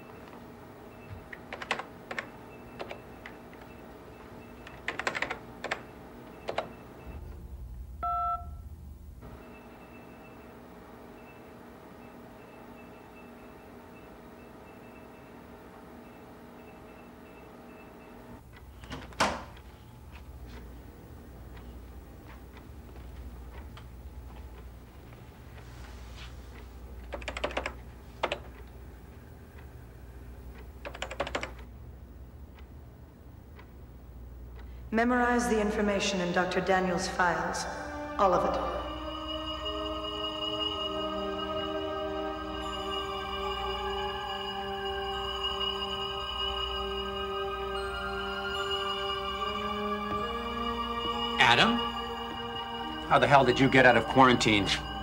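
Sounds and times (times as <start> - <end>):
low electronic hum: 0.0 - 55.0
keypad loud beep: 1.0 - 7.2, 8.0 - 8.6
computer keyboard keys clicking: 4.6 - 5.8, 27.1 - 28.5, 30.8 - 31.7.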